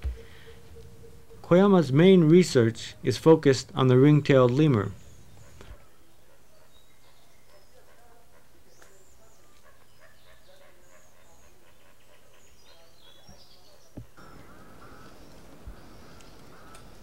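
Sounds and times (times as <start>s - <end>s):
repeated arching calls: 0.0s - 17.0s
bird chirps and calls: 4.6s - 17.0s.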